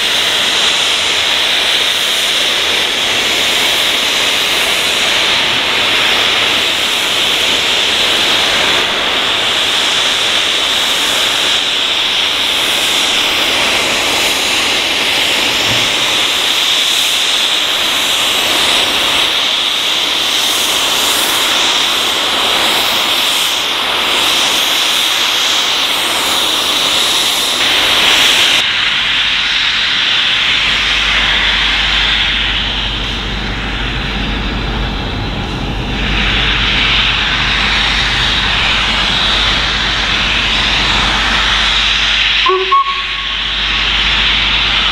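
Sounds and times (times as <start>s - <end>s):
steam hissing: 0.0s - 44.9s
low rumble: 30.4s - 44.9s.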